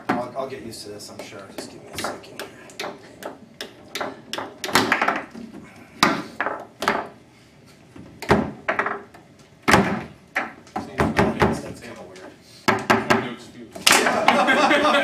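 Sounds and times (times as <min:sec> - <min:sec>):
foosball ball clacking: 0:01.1 - 0:07.2, 0:08.2 - 0:12.0, 0:12.7 - 0:14.5.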